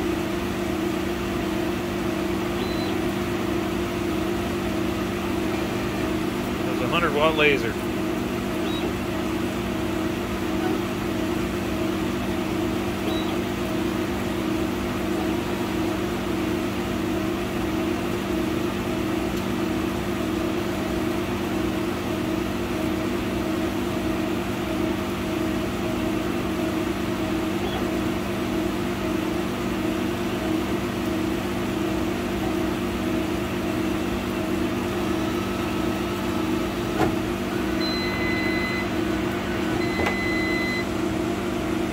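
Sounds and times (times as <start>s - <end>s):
laser cutter machine hum: 0.0s - 41.9s.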